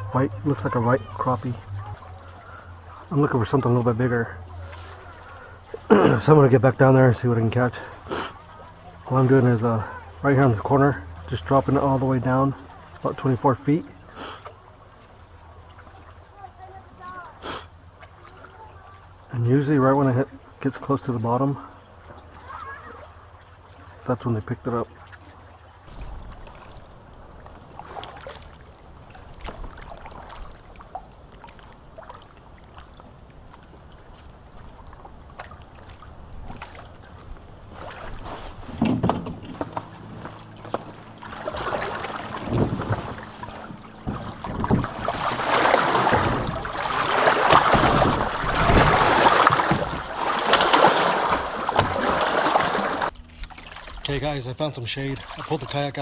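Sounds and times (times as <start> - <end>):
low steady rumble: 0.0 - 56.0
water lapping against kayak hull: 0.0 - 56.0
knocks on kayak hull: 38.7 - 39.8, 42.4 - 45.2.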